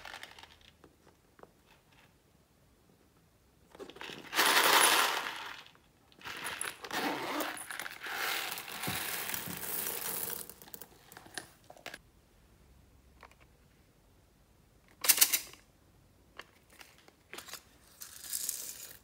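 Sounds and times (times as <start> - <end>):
beads pouring into tray: 4.0 - 11.4, 17.9 - 19.0.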